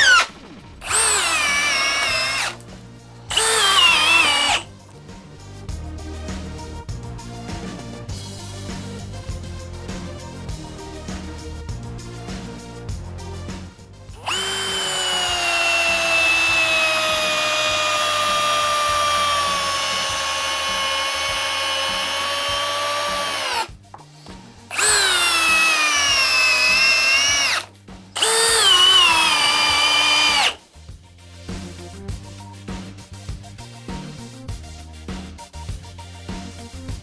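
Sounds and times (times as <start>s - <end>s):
drill driving screw into wood: 0.0s - 2.6s, 3.3s - 4.7s, 14.2s - 23.7s, 24.7s - 30.6s.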